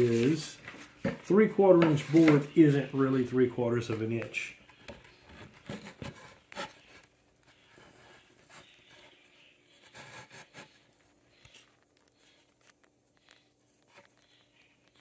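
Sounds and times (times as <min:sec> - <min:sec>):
wood scraping on wood: 0:00.0 - 0:03.0.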